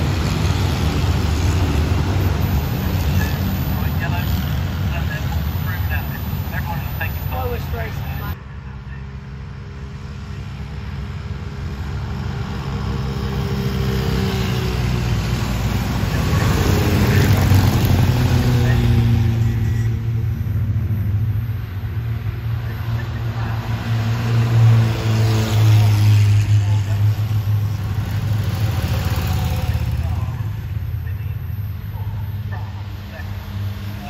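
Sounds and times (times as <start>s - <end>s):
racing car engines passing: 0.0s - 34.0s.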